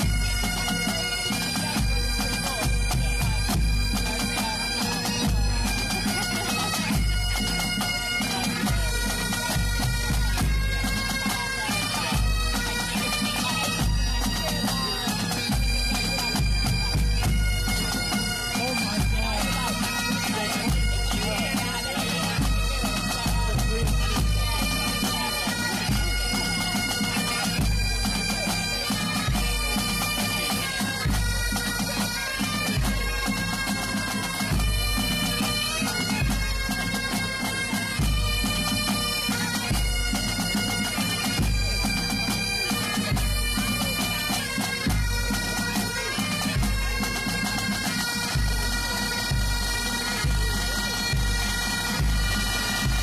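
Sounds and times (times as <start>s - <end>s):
bagpipes playing a tune: 0.0s - 53.0s
low drum beat: 13.5s - 26.8s.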